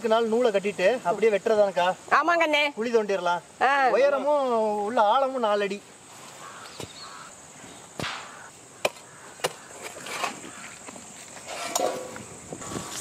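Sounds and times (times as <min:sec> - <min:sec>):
iron bar striking hard ground: 0:08.0 - 0:10.4, 0:11.5 - 0:12.2.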